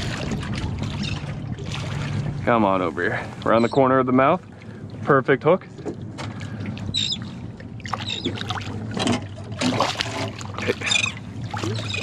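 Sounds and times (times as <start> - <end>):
fish splashing at the surface: 7.8 - 12.0.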